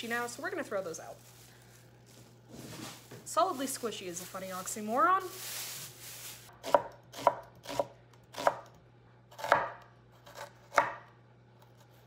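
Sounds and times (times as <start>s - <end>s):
knife chopping onion on wooden board: 6.6s - 11.2s.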